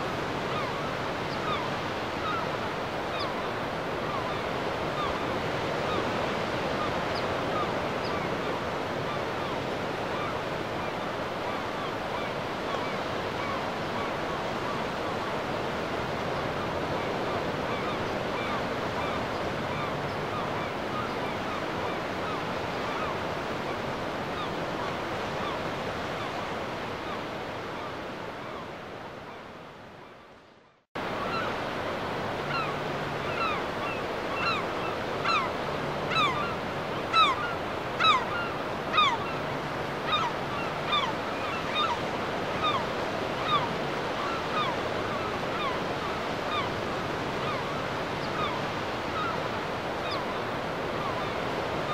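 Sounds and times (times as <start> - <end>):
sea water and wind rushing: 0.0 - 51.9.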